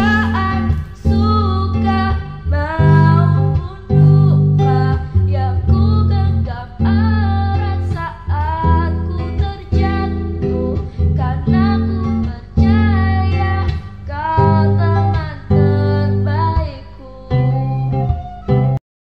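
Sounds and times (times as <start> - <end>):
acoustic guitar song with singing: 0.0 - 18.8.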